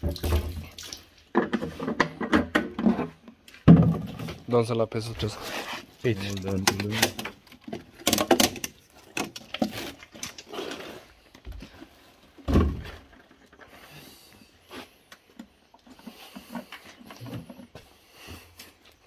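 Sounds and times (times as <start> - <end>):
plastic jerrycans handled: 0.0 - 19.0
small clicks and knocks: 6.2 - 10.5.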